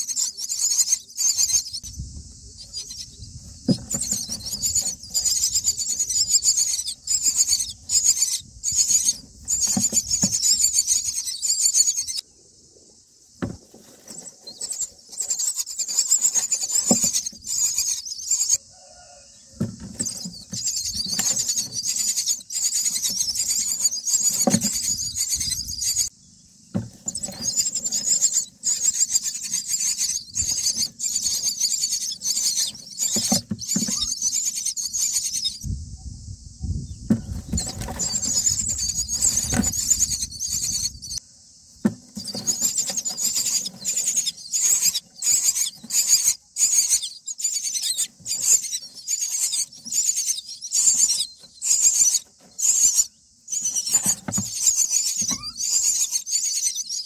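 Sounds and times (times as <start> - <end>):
nestlings begging chirps: 0.0 - 57.0
knocks and rustling in nest: 2.1 - 8.0, 8.6 - 11.2, 13.3 - 18.0, 18.6 - 34.8, 37.0 - 46.4, 51.0 - 55.8.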